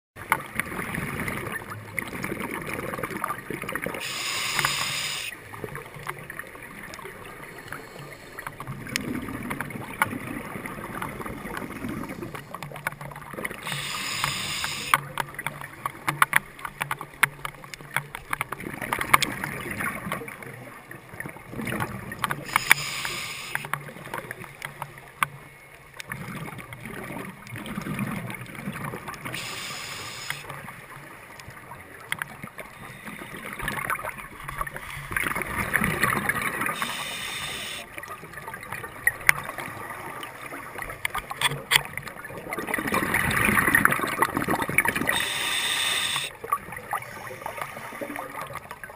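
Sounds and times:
crackling clicks: 0.2 - 20.3, 21.6 - 38.0, 38.7 - 39.8, 40.8 - 48.9
regulator bubbles underwater: 0.2 - 48.9.

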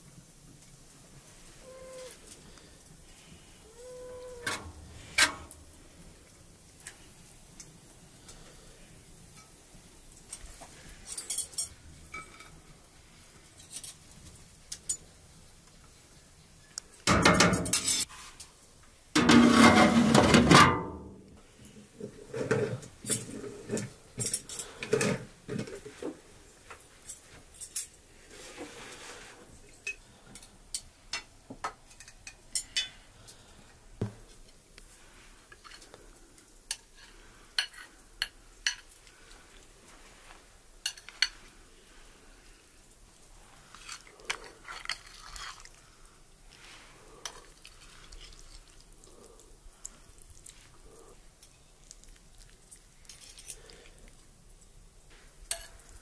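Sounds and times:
cutlery and dishes clinking: 11.1 - 12.6, 17.1 - 18.1, 43.7 - 45.7, 53.0 - 53.8, 55.5 - 55.9.

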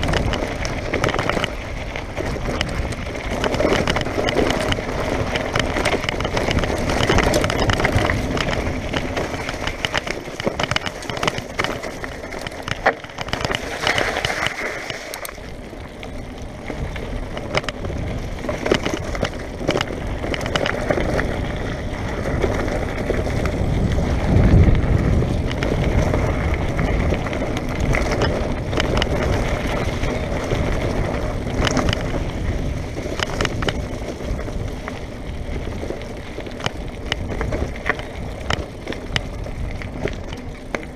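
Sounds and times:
bike rattling and knocking: 0.0 - 40.9
bike tyres on gravel: 0.0 - 40.9
wind on microphone: 0.0 - 40.9.

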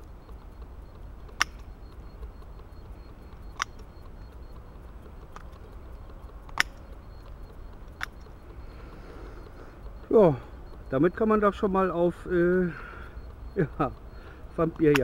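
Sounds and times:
shears blades clicking: 0.4 - 8.6, 14.6 - 15.0.

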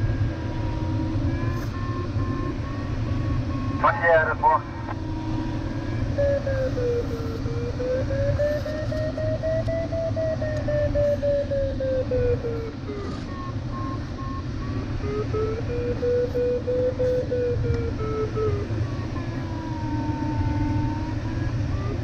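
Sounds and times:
airflow rushing in cockpit: 0.0 - 22.0
variometer continuous tone: 0.0 - 22.0.

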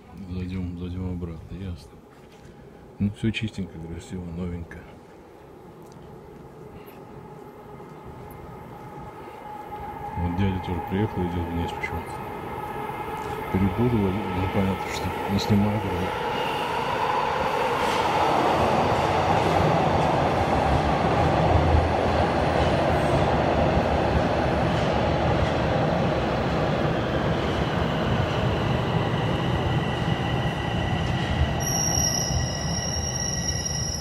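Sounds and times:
subway train rumble: 0.0 - 34.0.

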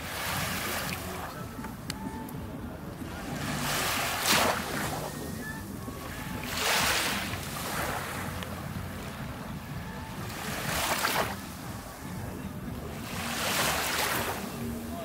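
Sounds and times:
low wind rumble: 0.0 - 15.0
sea waves washing on beach: 0.0 - 15.0.

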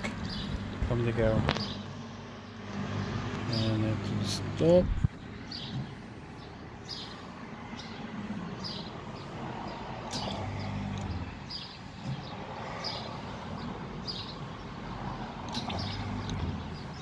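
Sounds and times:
vending machine hum: 0.0 - 17.0.

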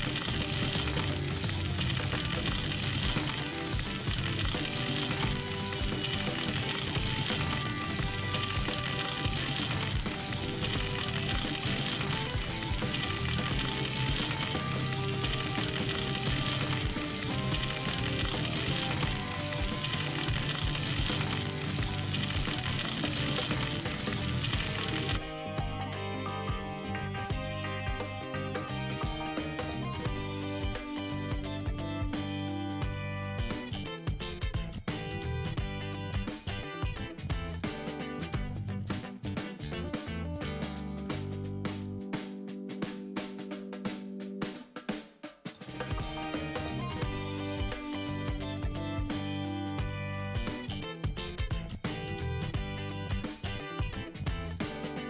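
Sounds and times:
steak sizzling in a skillet: 0.0 - 25.2.

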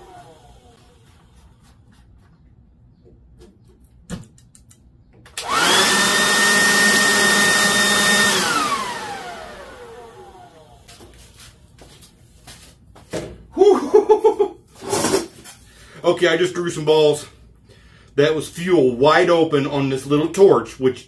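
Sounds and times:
air blower whine: 0.0 - 2.0, 5.3 - 11.6
sharp clicks: 3.8 - 5.5.

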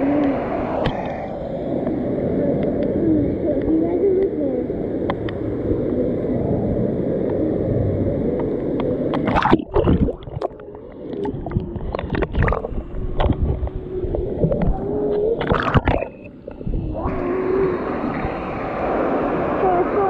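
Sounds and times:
faint steady hum: 0.0 - 20.0
muffled underwater sound: 0.0 - 20.0
underwater clicks: 5.0 - 5.4, 8.3 - 16.7
water sloshing and splashing: 8.4 - 20.0.

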